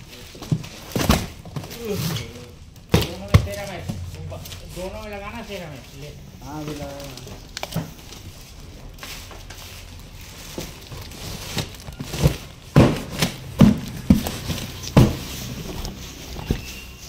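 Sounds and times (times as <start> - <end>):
cardboard rustling: 0.0 - 17.0
cardboard boxes knocking: 0.3 - 1.8, 2.9 - 4.0, 10.5 - 17.0.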